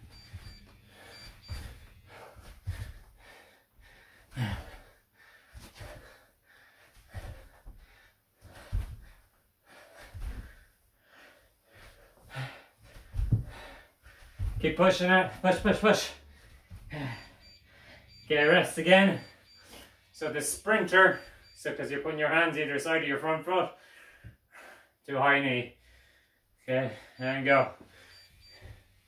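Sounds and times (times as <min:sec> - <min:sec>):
person panting: 0:00.4 - 0:14.6, 0:16.2 - 0:18.1
bare feet thudding on carpet: 0:12.9 - 0:14.8.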